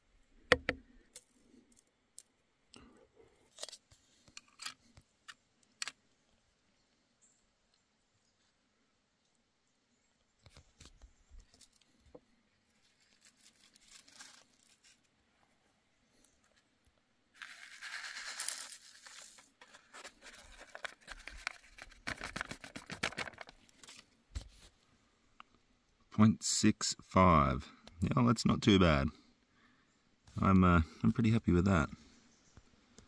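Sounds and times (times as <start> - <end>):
loud crinkling rustle: 12.7 - 15.1, 17.4 - 24.7.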